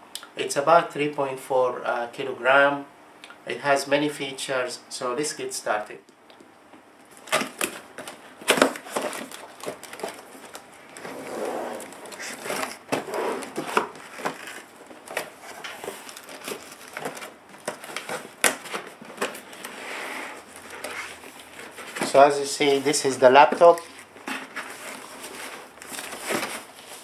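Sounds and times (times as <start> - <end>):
cardboard rustling and scraping: 7.1 - 27.0.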